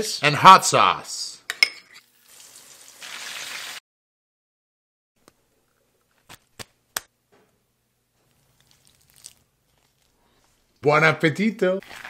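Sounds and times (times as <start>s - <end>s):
chicken frying in hot oil: 2.1s - 3.8s.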